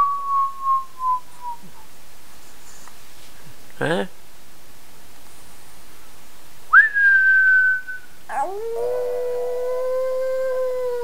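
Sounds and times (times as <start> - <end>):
short high whistle: 6.7 - 8.0
dog howling: 8.3 - 11.0.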